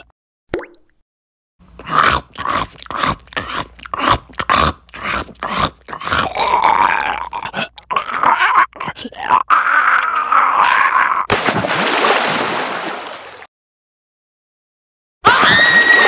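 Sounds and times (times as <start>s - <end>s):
chewing and crunching: 1.8s - 8.1s
person groaning: 1.8s - 11.3s.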